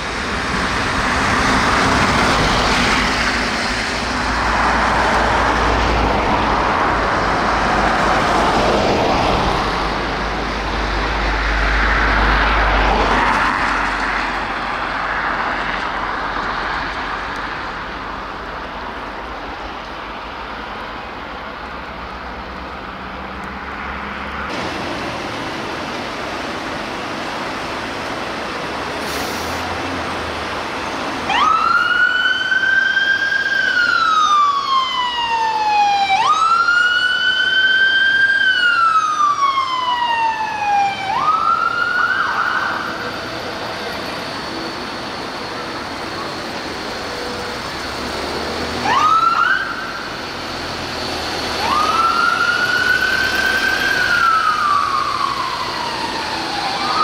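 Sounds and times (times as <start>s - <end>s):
city traffic: 0.0s - 57.0s
ambulance siren wailing: 31.2s - 57.0s.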